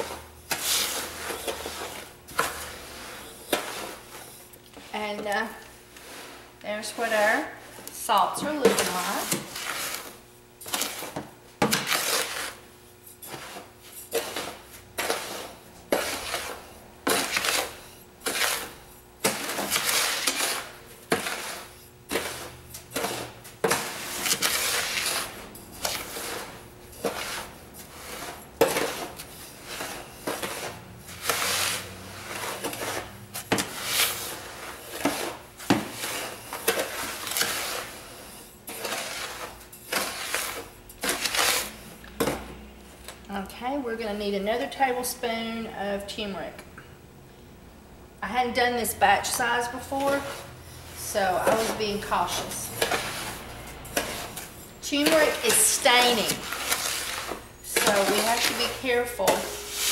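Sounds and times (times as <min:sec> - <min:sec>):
metal spoon scraping salt crystals: 0:50.0 - 0:59.9.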